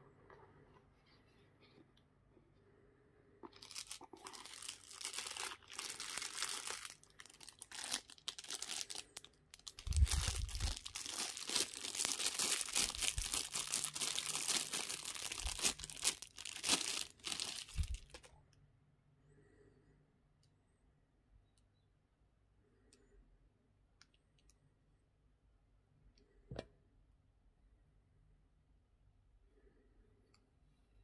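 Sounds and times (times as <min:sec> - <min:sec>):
plastic bag crinkling: 0:03.4 - 0:18.3.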